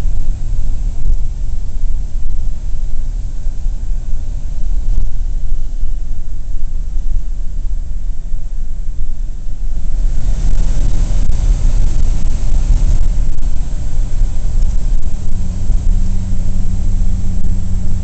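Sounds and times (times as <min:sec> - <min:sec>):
car engine rumbling: 0:00.0 - 0:18.0
tyre and wind noise: 0:08.7 - 0:18.0.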